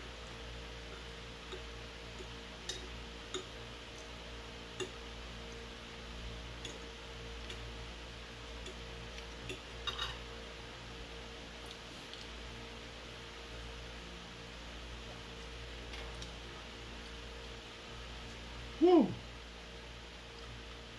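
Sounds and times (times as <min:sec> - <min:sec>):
cutlery clinking on a plate: 0:09.8 - 0:10.2.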